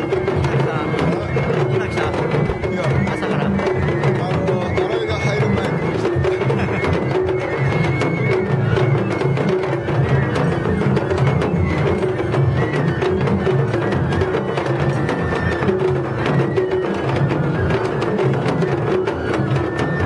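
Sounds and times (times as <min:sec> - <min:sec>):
bamboo flute melody: 0:00.0 - 0:20.0
taiko drums beating: 0:00.0 - 0:20.0.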